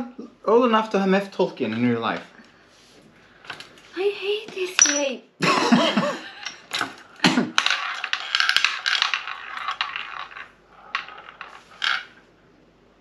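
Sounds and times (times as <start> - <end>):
roulette ball rattling: 4.7 - 5.2, 6.4 - 12.3.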